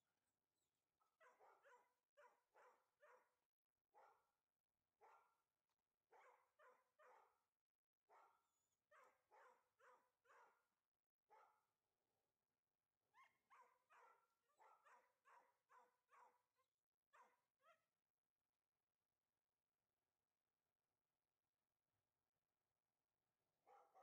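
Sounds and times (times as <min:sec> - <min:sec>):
dog barking faintly: 0:08.1 - 0:10.6, 0:13.2 - 0:16.4.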